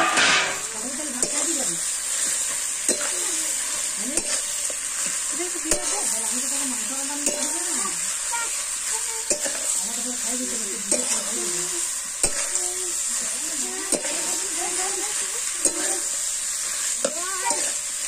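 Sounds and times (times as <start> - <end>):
chicken sizzling in a wok: 0.0 - 18.0
metal spatula scraping pan: 0.0 - 18.0.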